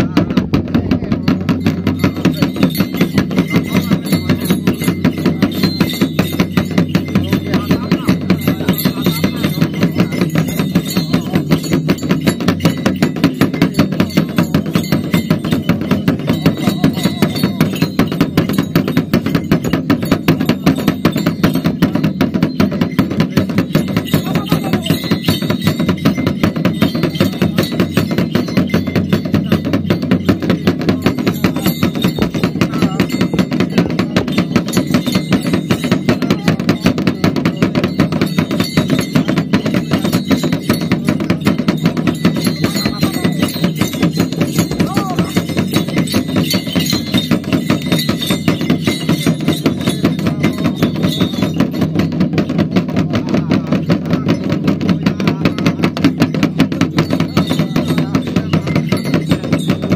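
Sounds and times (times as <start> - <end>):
fast percussion beat: 0.0 - 59.9
man chanting: 53.1 - 56.0.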